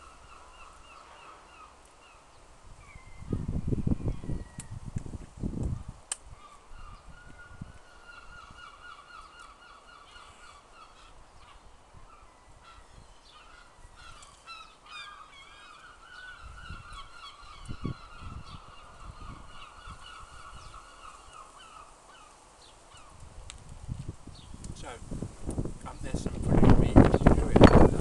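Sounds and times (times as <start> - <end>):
birds honking or cawing: 0.0 - 2.3, 6.3 - 23.2.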